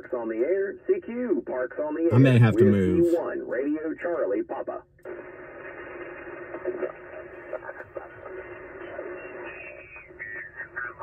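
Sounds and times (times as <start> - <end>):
garbled radio voices: 2.1 - 3.2.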